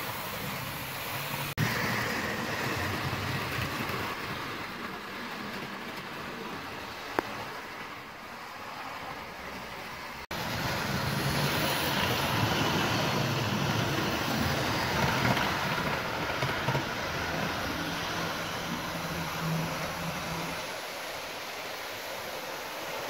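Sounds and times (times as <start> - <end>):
wheels rumbling on rails: 0.0 - 23.0
model train motor hum: 10.4 - 23.0.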